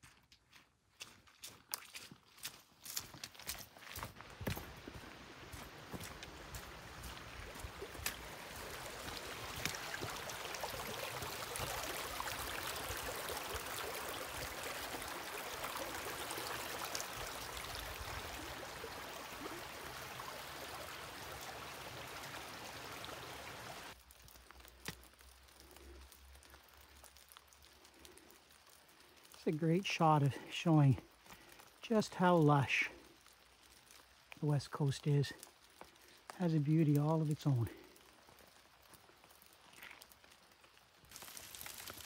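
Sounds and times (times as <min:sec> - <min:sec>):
footsteps on dirt trail: 0:00.0 - 0:10.8, 0:37.8 - 0:40.4
creek flowing and trickling: 0:01.0 - 0:42.0.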